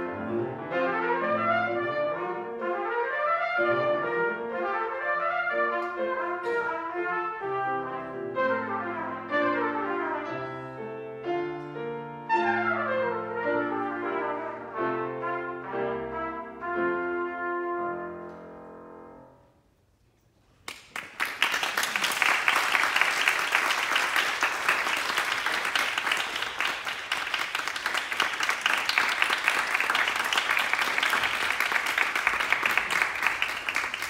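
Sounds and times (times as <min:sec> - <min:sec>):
brass solo with piano: 0:00.0 - 0:19.4
audience applause: 0:20.6 - 0:34.0.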